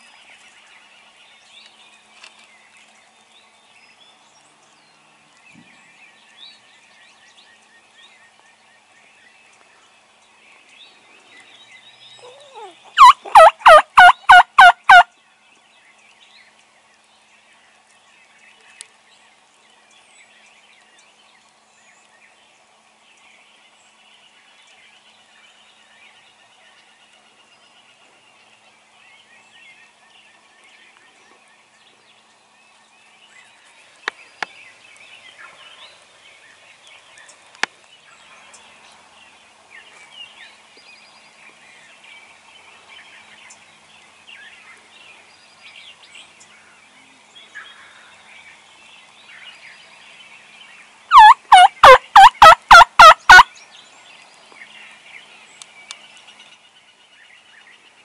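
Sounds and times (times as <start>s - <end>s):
faint songbird chatter: 0.0s - 58.0s
turkey gobbling: 12.6s - 15.0s, 51.1s - 53.5s.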